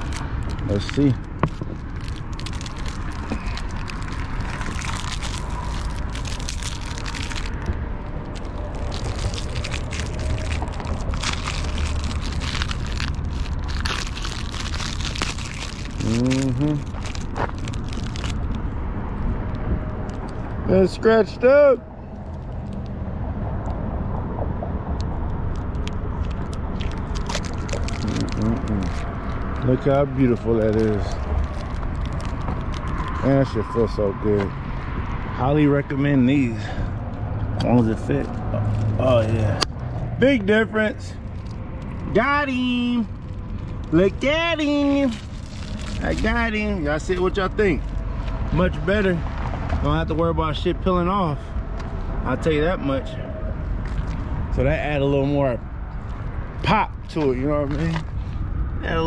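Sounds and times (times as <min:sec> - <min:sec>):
plastic wrap crinkling: 0:00.0 - 0:18.6, 0:25.6 - 0:33.3, 0:43.2 - 0:48.4
steady low rumble: 0:00.0 - 0:59.0.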